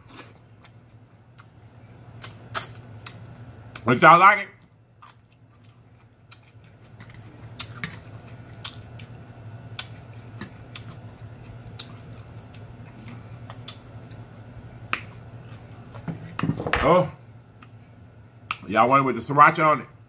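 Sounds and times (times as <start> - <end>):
steady low hum: 0.0 - 20.0
close chewing: 5.0 - 16.1.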